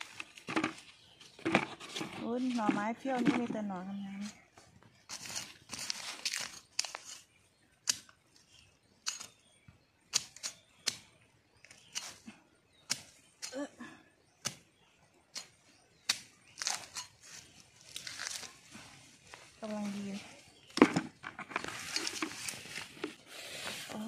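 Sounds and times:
hoe chopping into soil and leaves: 15.4s - 18.5s.

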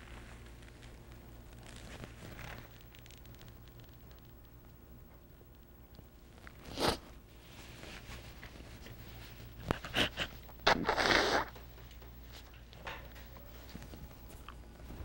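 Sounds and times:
woman sniffing: 9.8s - 11.5s
woman blowing nose: 9.9s - 11.6s.

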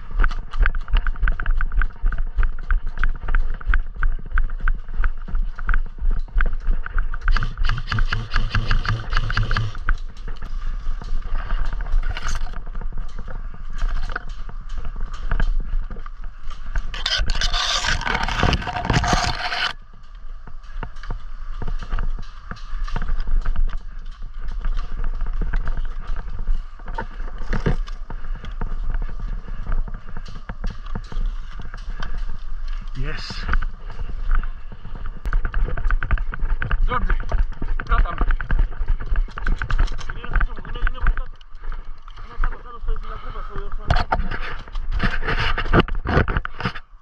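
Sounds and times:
footsteps through dry grass: 0.0s - 47.0s
quick regular clatter: 5.8s - 16.0s, 16.7s - 19.8s.

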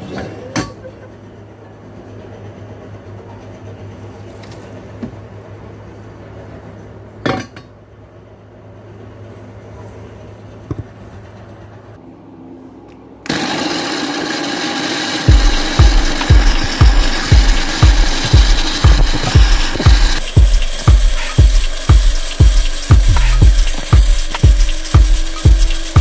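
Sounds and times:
blender motor running: 13.3s - 26.0s.

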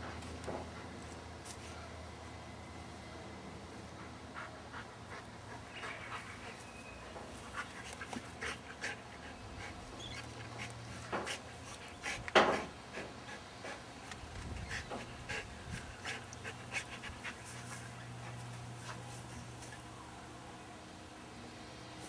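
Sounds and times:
dogs panting: 3.8s - 19.9s.

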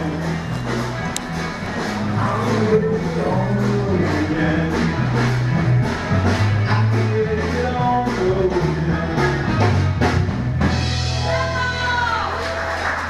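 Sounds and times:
rock song: 0.0s - 13.0s
person singing: 2.0s - 5.5s, 6.5s - 9.9s.

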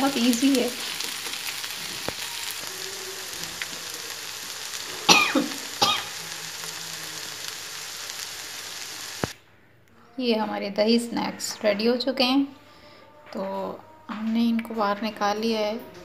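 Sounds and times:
fritters sizzling in oil: 0.0s - 9.4s.

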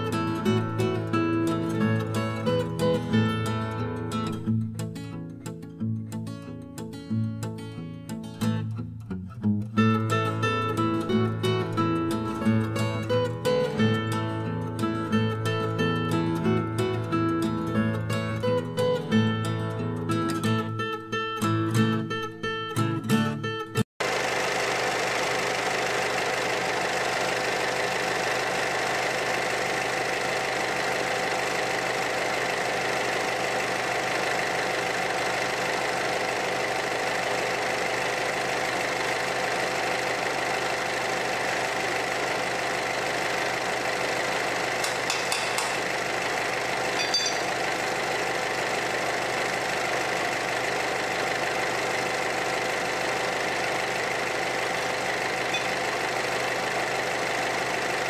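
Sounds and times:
diesel engine idling: 0.0s - 4.2s, 24.0s - 58.0s.

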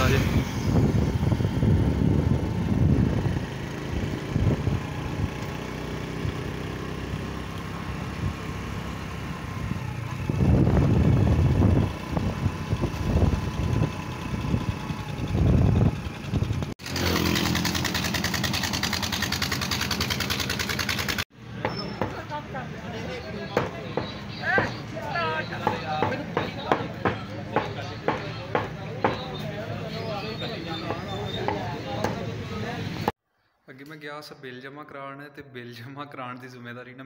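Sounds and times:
wind buffeting microphone: 0.0s - 5.4s, 9.8s - 16.7s
vehicle engine running: 0.0s - 21.2s
road noise: 0.0s - 33.2s.

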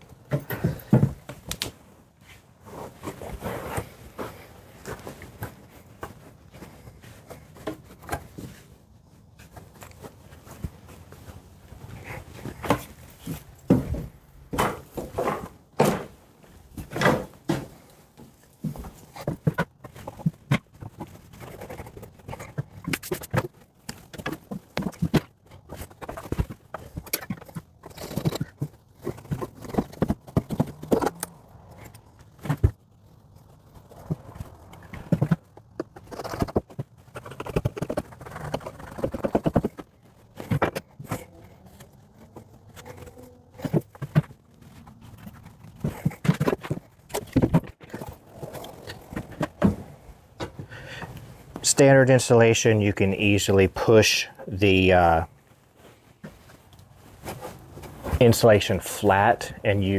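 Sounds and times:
rustling and scraping insulation: 0.0s - 59.9s
thumps and knocks: 0.2s - 1.8s, 12.4s - 50.8s.

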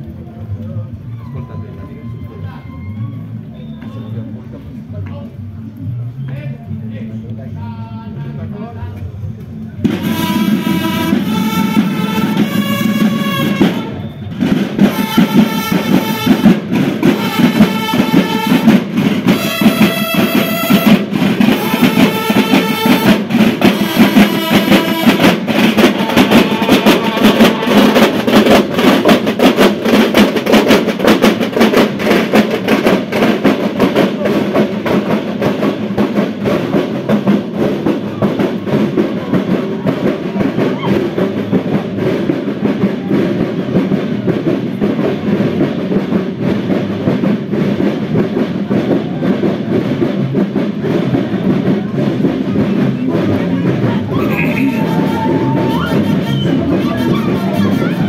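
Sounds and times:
marching drums: 9.2s - 58.0s
brass horns playing a march: 9.9s - 30.9s, 54.2s - 58.0s.

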